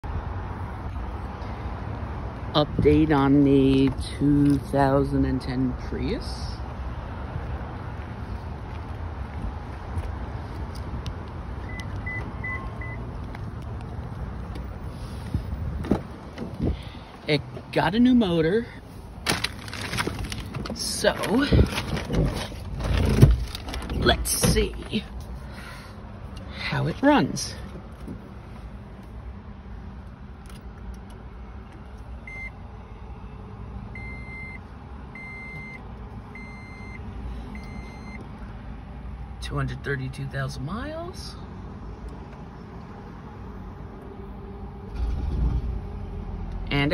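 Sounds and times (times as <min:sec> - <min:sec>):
car warning beeps: 0:11.6 - 0:13.0, 0:32.2 - 0:32.6, 0:33.9 - 0:38.2.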